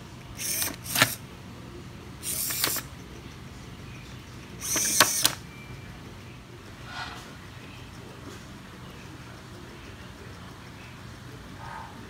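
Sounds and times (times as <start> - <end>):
servo motors whirring: 0.4 - 1.2, 2.2 - 2.9, 4.6 - 5.4
sharp clicks: 2.2 - 2.9, 4.6 - 5.4.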